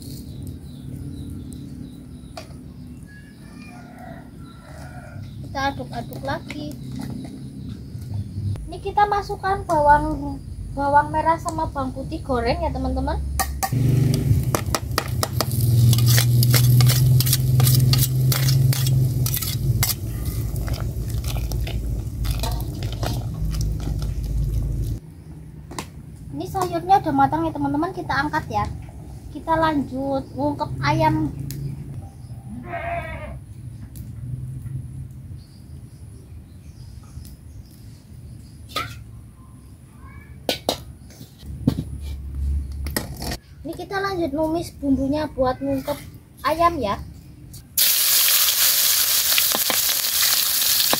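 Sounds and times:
metal utensils scraping cooking pot: 15.4s - 24.1s.

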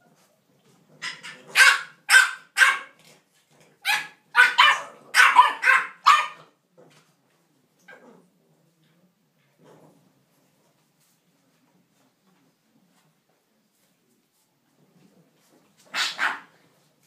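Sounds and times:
puppies barking: 1.0s - 3.0s, 3.8s - 6.5s, 15.9s - 16.5s.

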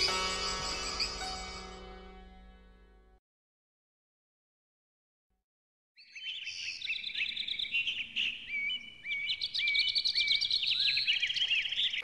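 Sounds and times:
songbirds singing and chirping: 0.0s - 1.8s, 6.0s - 12.0s.

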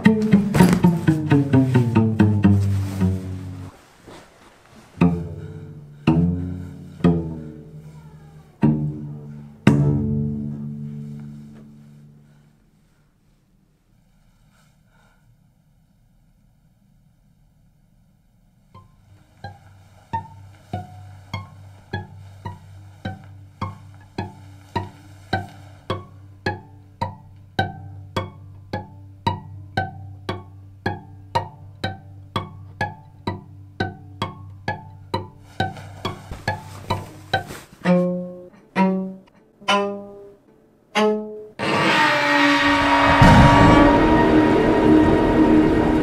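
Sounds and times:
suspenseful string music: 0.0s - 3.7s, 5.0s - 7.8s, 20.2s - 40.3s, 40.9s - 46.0s
plucked notes: 0.0s - 3.8s, 4.9s - 12.1s, 18.8s - 42.0s
low sustained bass tone: 5.0s - 12.4s, 42.6s - 46.0s.

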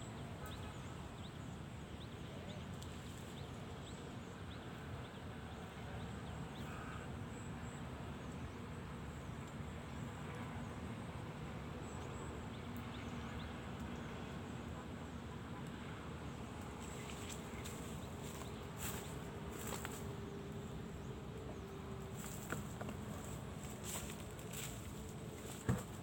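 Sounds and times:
constant rumbling hiss: 0.0s - 26.0s
insects buzzing: 16.7s - 26.0s.

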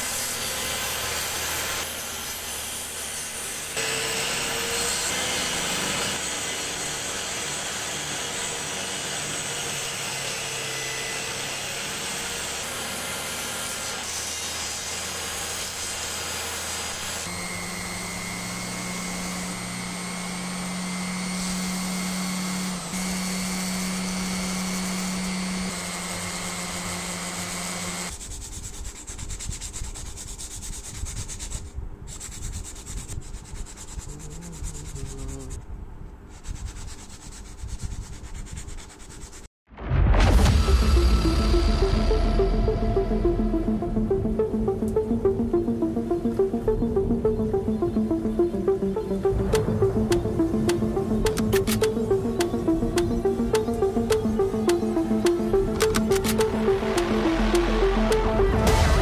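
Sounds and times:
table saw cutting wood: 0.0s - 28.2s, 40.7s - 59.0s
wood rubbed on sandpaper: 23.4s - 35.6s, 36.2s - 39.5s.

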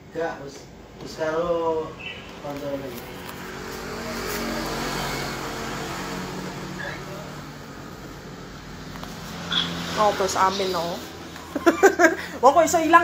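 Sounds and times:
photocopier whirring: 2.0s - 12.2s.

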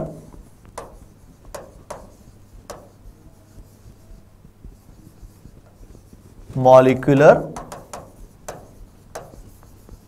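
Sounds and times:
writing scratching on board: 0.0s - 10.0s
writing tip tapping: 0.0s - 10.0s.

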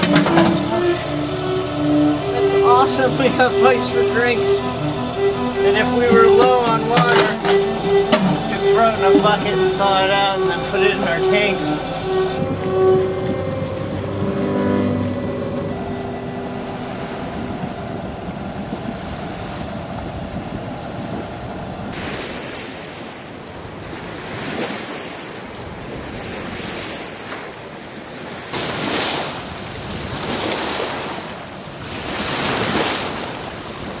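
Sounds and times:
seawater sloshing around ice: 0.0s - 19.8s, 21.9s - 34.0s
wind noise on microphone: 6.1s - 34.0s.

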